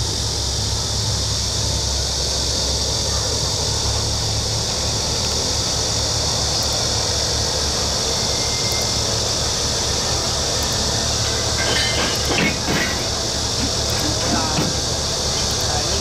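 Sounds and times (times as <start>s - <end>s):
diesel locomotive engine rumble: 0.0s - 16.0s
metallic clanks: 11.2s - 14.8s.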